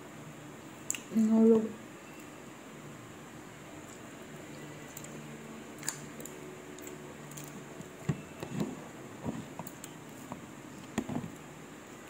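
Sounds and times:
wet chewing: 0:05.8 - 0:07.6.

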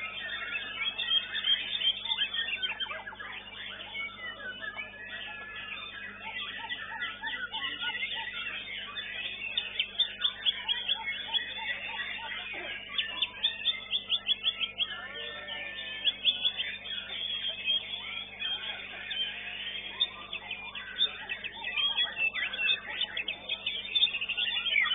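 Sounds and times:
sharp repeated bird notes: 0:00.0 - 0:24.9
songbirds singing: 0:00.0 - 0:24.9.

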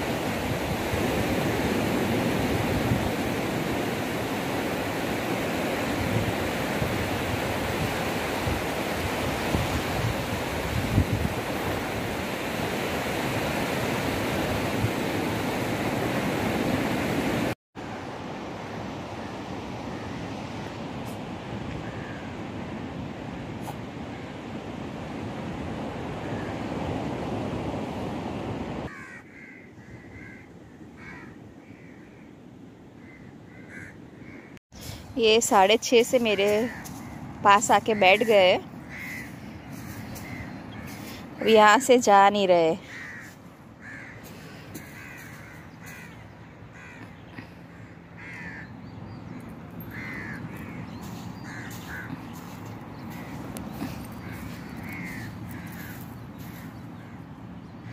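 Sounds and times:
wind and surf on microphone: 0:00.0 - 0:29.1, 0:29.8 - 0:57.9
crows cawing: 0:28.9 - 0:32.4, 0:33.0 - 0:34.6, 0:36.6 - 0:37.3, 0:38.0 - 0:41.2, 0:42.8 - 0:57.9.

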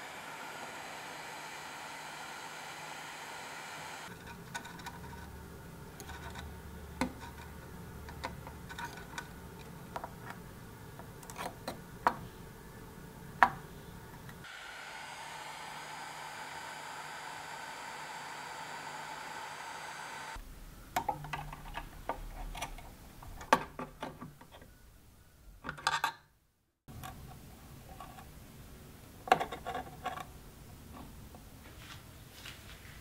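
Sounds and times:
steady hum: 0:00.0 - 0:04.1, 0:11.9 - 0:20.9.

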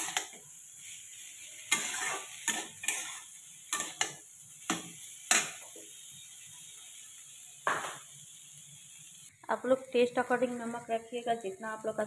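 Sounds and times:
metal spatula scraping a pan: 0:00.0 - 0:05.8
hot oil sizzling: 0:00.0 - 0:12.0.

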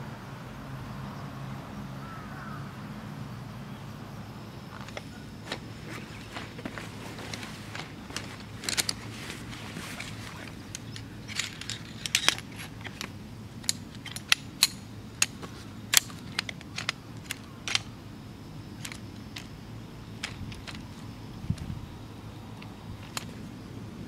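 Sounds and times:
nylon bag rustling: 0:04.7 - 0:13.1
metallic clicks and taps: 0:10.6 - 0:17.9.

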